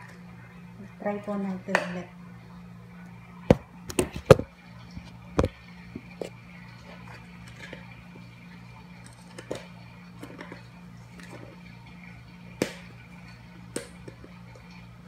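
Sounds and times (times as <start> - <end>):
steady low hum: 0.0 - 15.0
objects knocking and clicking: 3.5 - 6.3.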